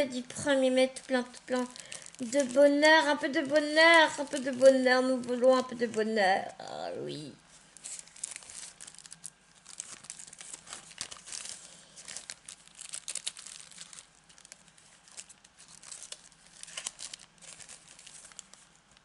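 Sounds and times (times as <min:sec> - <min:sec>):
plastic sleeve crinkling: 0:00.0 - 0:19.0.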